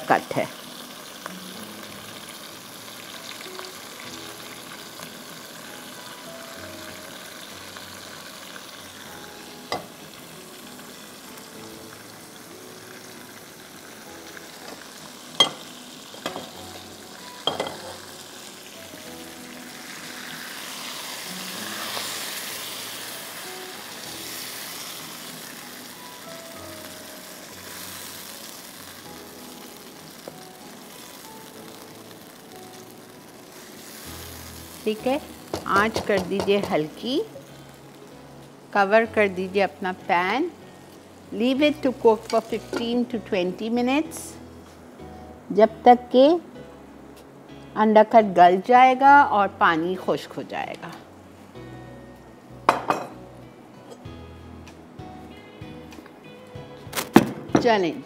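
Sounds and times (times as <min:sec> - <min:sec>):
meat sizzling in a hot pan: 0:00.0 - 0:47.9.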